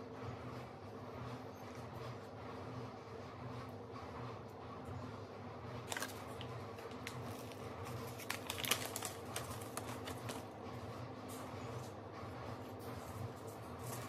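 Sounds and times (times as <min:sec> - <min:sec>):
paper packet crinkling: 0:05.8 - 0:10.5.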